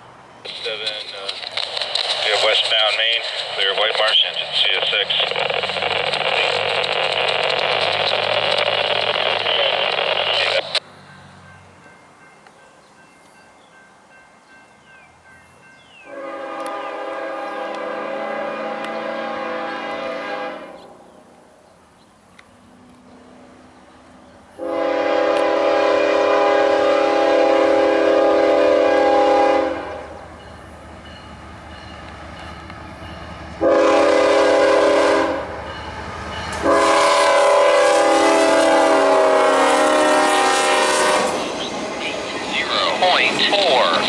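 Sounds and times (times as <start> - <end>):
train rumble: 0.0 - 44.0
locomotive air horn: 16.1 - 21.0, 24.6 - 30.2, 33.6 - 35.6, 36.6 - 41.4.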